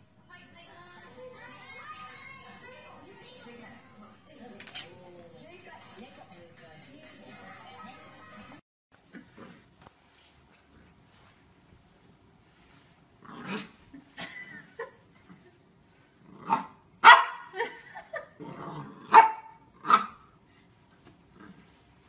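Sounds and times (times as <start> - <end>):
puppy barking and yipping: 17.0 - 17.5.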